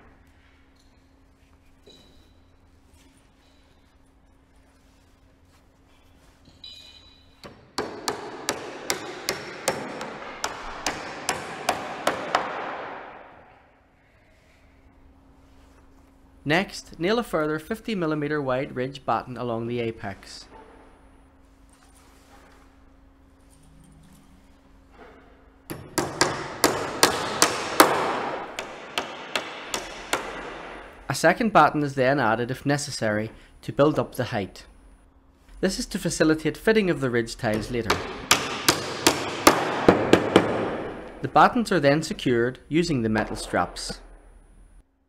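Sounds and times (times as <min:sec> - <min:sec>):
hammer driving nails into timber: 0:07.4 - 0:13.3, 0:25.7 - 0:31.0, 0:37.5 - 0:41.1.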